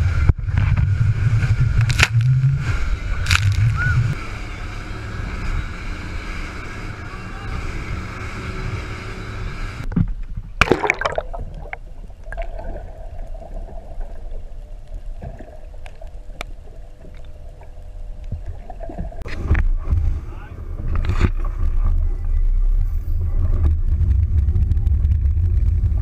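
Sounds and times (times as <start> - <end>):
water rushing from boat wake: 0.0 - 9.9
faint steady hum: 0.0 - 26.0
wind: 0.0 - 26.0
water bubbling and gurgling: 10.5 - 19.9
muffled underwater sound: 10.7 - 26.0.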